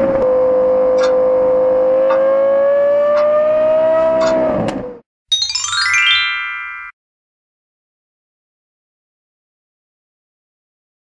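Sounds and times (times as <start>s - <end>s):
bright rising chime: 5.3s - 7.0s.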